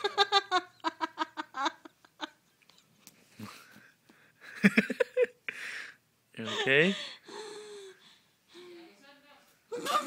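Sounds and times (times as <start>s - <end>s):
person laughing breathlessly: 4.4s - 8.2s
wheezy breaths: 5.5s - 8.9s.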